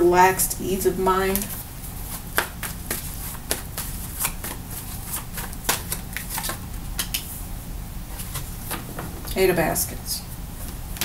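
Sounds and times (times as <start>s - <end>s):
cards being shuffled: 1.3s - 7.3s.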